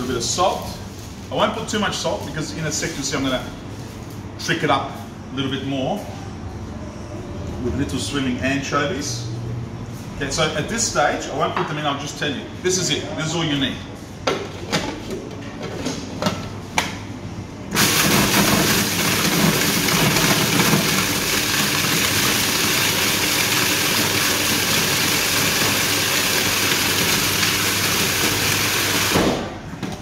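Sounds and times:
food processor motor running: 0:17.8 - 0:29.4.

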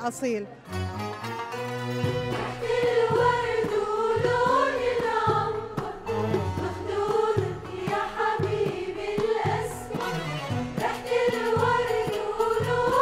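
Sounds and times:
choir singing: 0:02.0 - 0:13.0
low bass line: 0:06.1 - 0:06.7.

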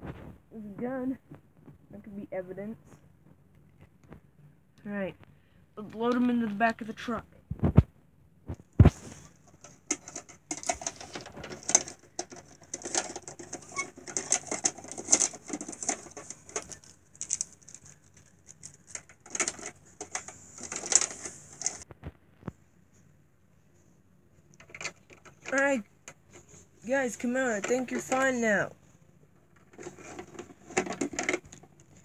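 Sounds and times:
plastic toys clicking and tapping: 0:09.5 - 0:21.8, 0:24.5 - 0:26.2, 0:26.9 - 0:28.6, 0:29.5 - 0:32.0.

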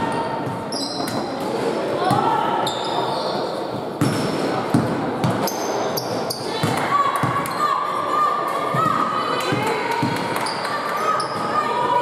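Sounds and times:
players' voices: 0:00.0 - 0:12.0
shoe squeaks on court: 0:00.7 - 0:01.3.

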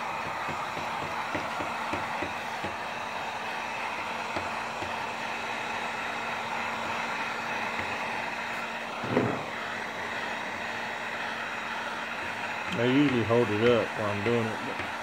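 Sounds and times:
heat gun fan blowing: 0:00.0 - 0:15.0
low thump: 0:09.0 - 0:09.5.

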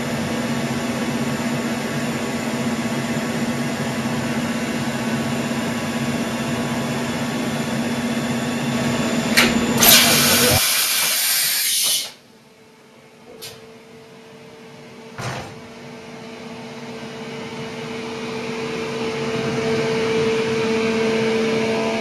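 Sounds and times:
loud hiss: 0:09.8 - 0:12.2.

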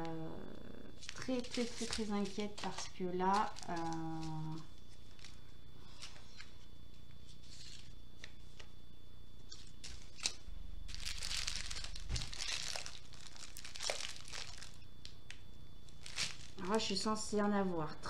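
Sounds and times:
plastic sachets crinkling: 0:01.0 - 0:06.6, 0:09.4 - 0:17.3.

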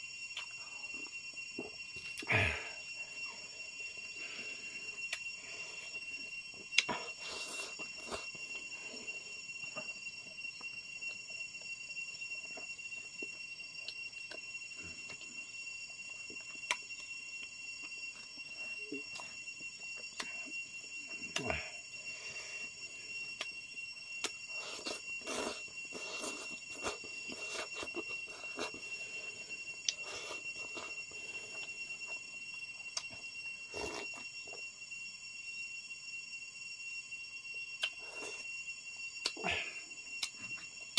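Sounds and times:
high-pitched ringing tone: 0:00.0 - 0:40.9
slurping and chewing food: 0:06.8 - 0:08.7, 0:24.2 - 0:31.7, 0:33.7 - 0:34.2.

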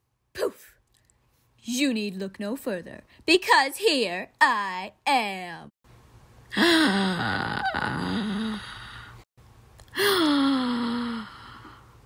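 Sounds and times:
person making wordless vocal sounds: 0:06.5 - 0:09.0.

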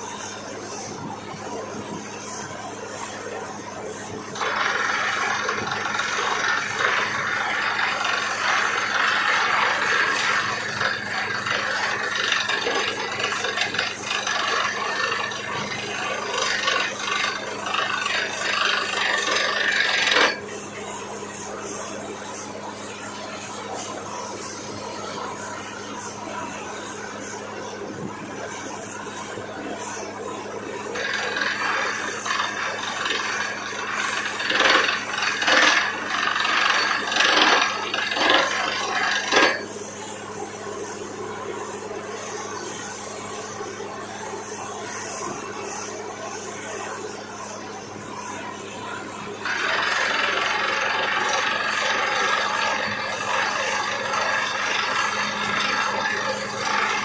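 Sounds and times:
drilling rig engine hum: 0:00.0 - 0:57.0
harsh rattling: 0:04.4 - 0:20.4, 0:31.0 - 0:39.7, 0:49.4 - 0:57.0
drilling rig humming: 0:30.3 - 0:40.2, 0:49.3 - 0:57.0
harsh scraping bursts: 0:31.0 - 0:39.6.

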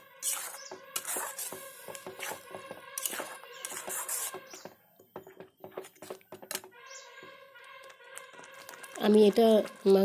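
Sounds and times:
spatula scraping paste in pan: 0:00.2 - 0:04.6
paste frying in oil: 0:00.3 - 0:04.4, 0:07.8 - 0:10.0.

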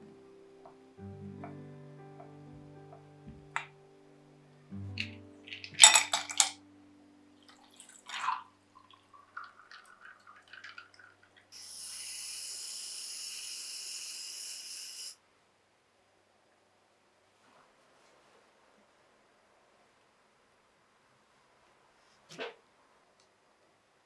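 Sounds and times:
ice cubes clattering into glass: 0:05.0 - 0:06.6
milk pouring into glass: 0:07.5 - 0:11.5
whipped cream can hissing: 0:11.5 - 0:15.2.

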